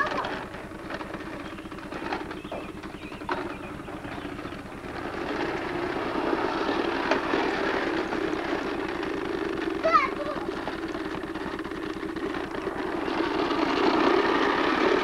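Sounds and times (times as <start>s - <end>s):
toy mower rattling on concrete: 0.0s - 15.0s.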